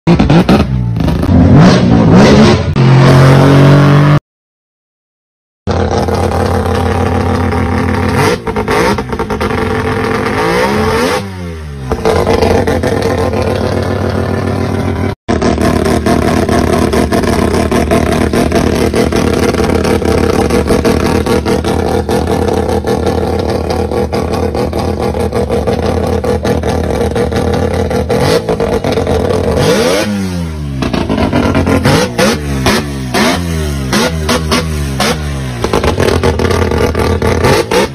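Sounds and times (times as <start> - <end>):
rotary engine fast uneven idle: 12.0 - 29.5.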